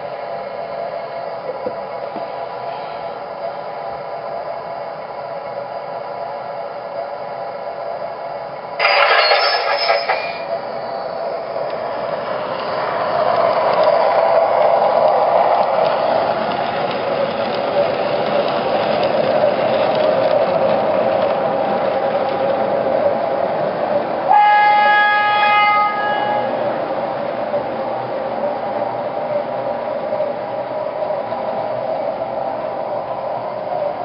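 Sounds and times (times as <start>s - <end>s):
model train rumbling on track: 0.0s - 34.0s
model train horn blast: 24.3s - 26.5s.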